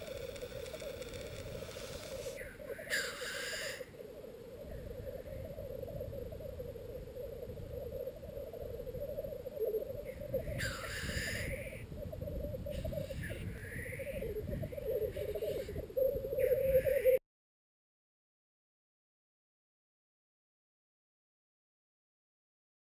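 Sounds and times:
grouse hissing calls: 0.0s - 3.9s, 10.3s - 11.8s
grouse bubbling coo: 0.0s - 17.2s.

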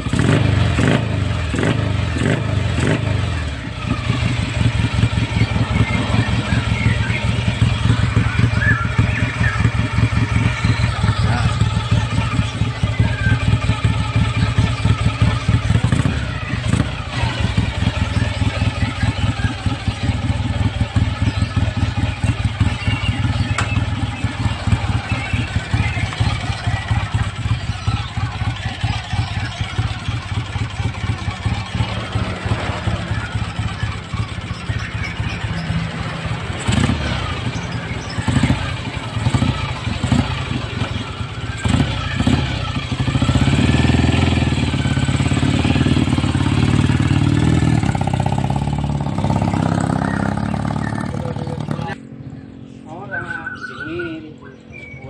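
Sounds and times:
motorcycle engine running: 0.0s - 52.6s.

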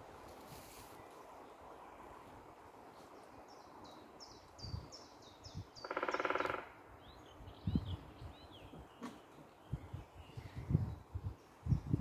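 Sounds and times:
small birds singing: 2.9s - 12.0s
woodpecker drumming on tree: 5.8s - 6.8s.

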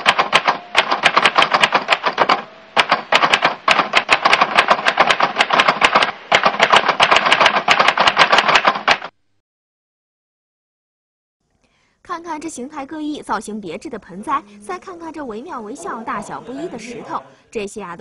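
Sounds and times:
typewriter keystroke clicks: 0.0s - 9.1s.

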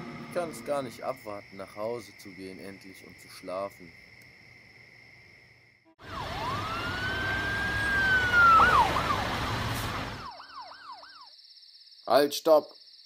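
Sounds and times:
police siren wailing and yelping: 6.0s - 11.3s.

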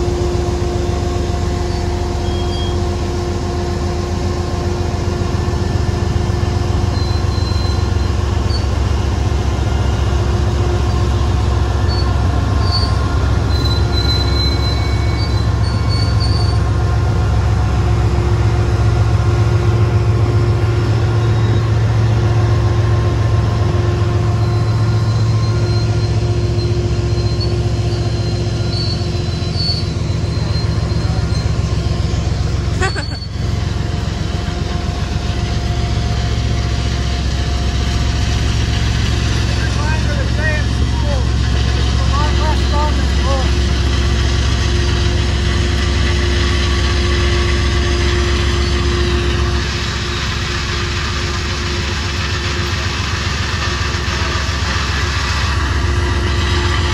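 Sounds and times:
train rumbling by: 0.0s - 56.9s
faint high wheel squeal: 0.8s - 3.2s, 6.3s - 16.8s, 20.8s - 22.1s, 24.0s - 33.6s, 45.8s - 50.2s.

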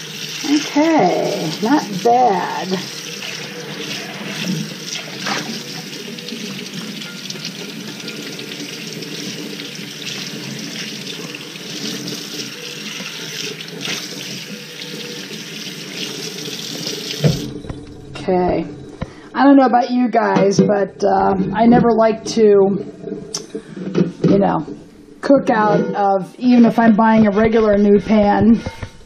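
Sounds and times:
faucet water splashing on pan: 0.0s - 17.6s.

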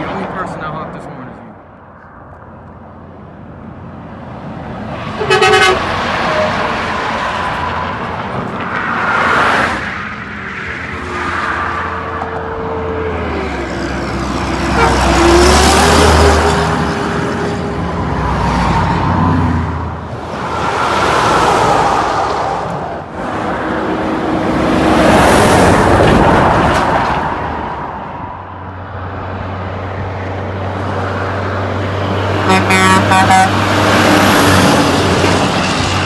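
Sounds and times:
trucks passing on highway: 0.0s - 36.0s
truck horn toot: 5.1s - 6.5s, 14.7s - 15.4s, 32.4s - 33.7s.

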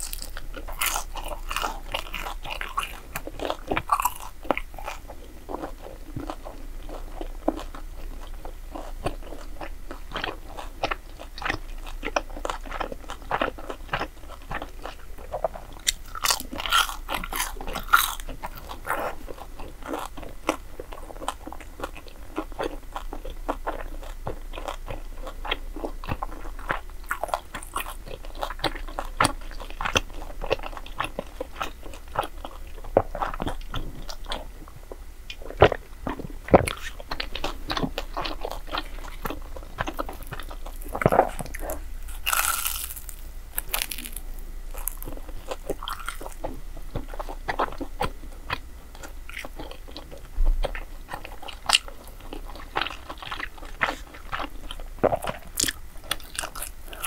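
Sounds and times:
person crunching fried food: 0.0s - 34.4s, 35.3s - 57.0s
wet chewing clicks: 35.3s - 57.0s.

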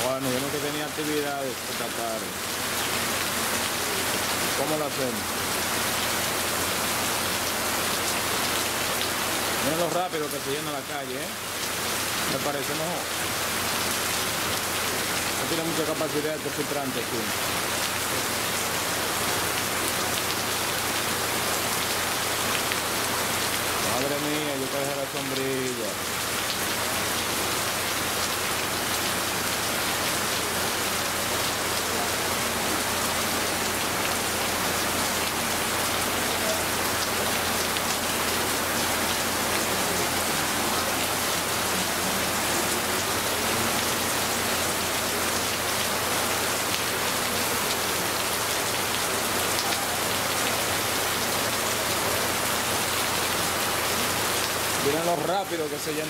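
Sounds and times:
heavy rain pouring: 0.0s - 56.0s.

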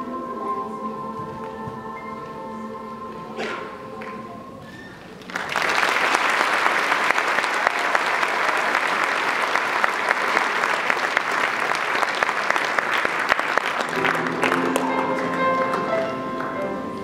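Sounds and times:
audience applause: 5.2s - 17.0s.

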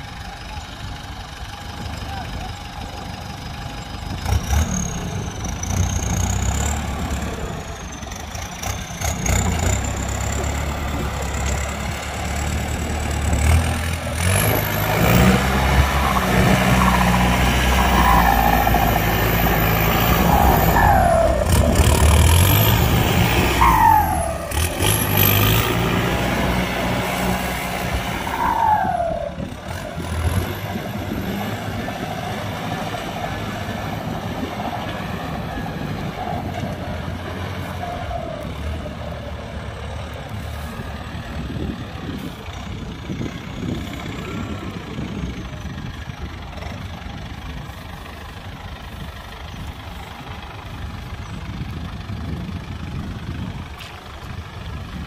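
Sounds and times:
tractor diesel engine: 0.0s - 55.0s.

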